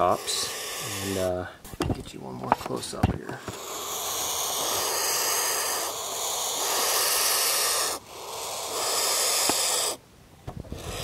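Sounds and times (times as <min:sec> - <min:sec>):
vulture chicks hissing: 0:00.0 - 0:01.6, 0:03.3 - 0:10.0, 0:10.7 - 0:11.0.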